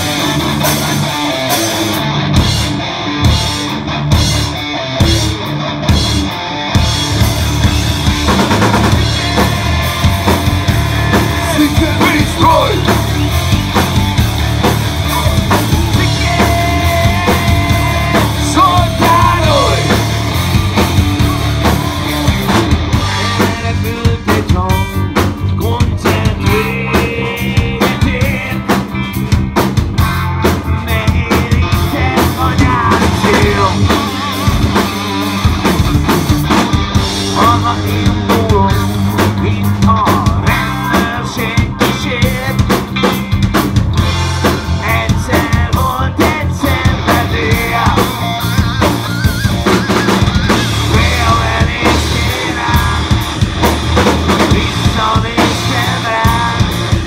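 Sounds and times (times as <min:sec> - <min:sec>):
bass guitar: 0:00.0 - 0:57.0
drum kit: 0:00.0 - 0:57.0
electric guitars: 0:00.0 - 0:57.0
pitch-bending melody line: 0:48.1 - 0:52.4.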